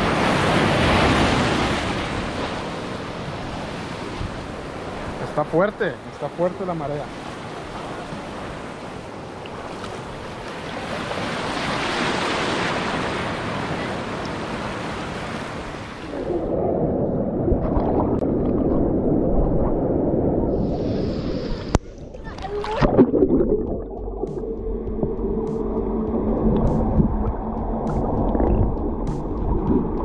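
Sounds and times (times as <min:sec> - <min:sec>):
muffled underwater churning: 0:16.0 - 0:30.0.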